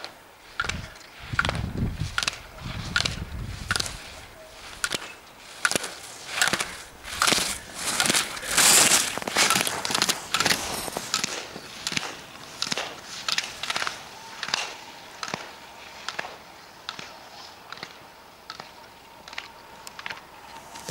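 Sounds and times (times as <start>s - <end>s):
skis scraping on hard snow: 2.0s - 14.6s.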